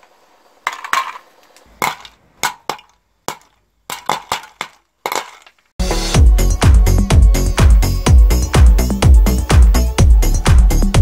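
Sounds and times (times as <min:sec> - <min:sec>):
popcorn kernels popping: 0:00.0 - 0:05.7.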